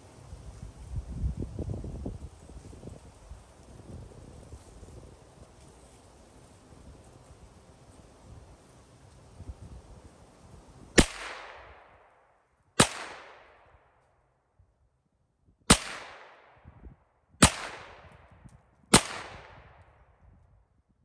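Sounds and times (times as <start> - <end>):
rifle shots with echo: 11.0 - 12.2, 12.8 - 13.9, 15.7 - 16.6, 17.4 - 18.3, 18.9 - 19.9.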